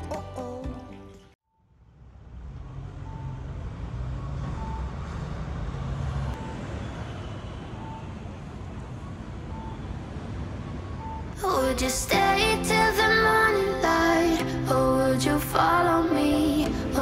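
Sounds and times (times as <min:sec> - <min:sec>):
background music: 0:00.0 - 0:01.4, 0:11.4 - 0:17.0
street traffic rumble: 0:01.7 - 0:17.0
short electronic beeps: 0:03.0 - 0:03.5, 0:04.2 - 0:05.0, 0:06.4 - 0:08.4, 0:09.0 - 0:10.0.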